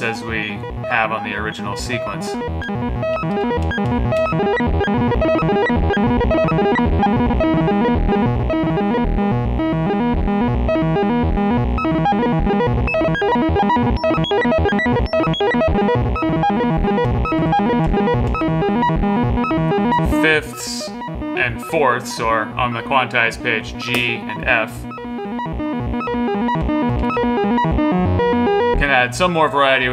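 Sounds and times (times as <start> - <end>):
synthesizer playing fast short notes: 0.0 - 9.0.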